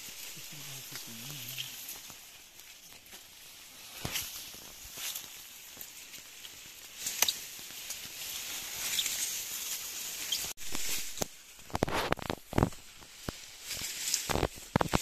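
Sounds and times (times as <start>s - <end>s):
dry grass rustling and crackling: 0.0s - 15.0s.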